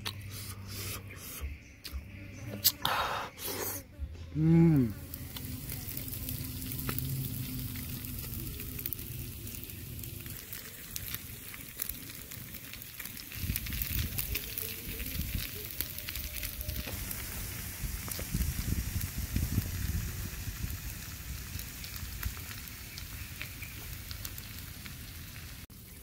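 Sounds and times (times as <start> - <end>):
low rumble: 4.0 - 23.4
fish sizzling over charcoal: 4.4 - 26.0.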